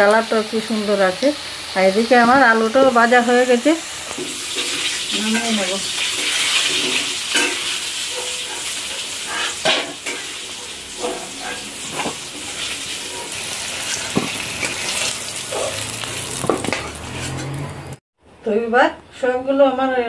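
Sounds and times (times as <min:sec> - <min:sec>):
potatoes sizzling in oil: 0:00.0 - 0:18.0
spatula scraping metal pan: 0:04.1 - 0:17.6.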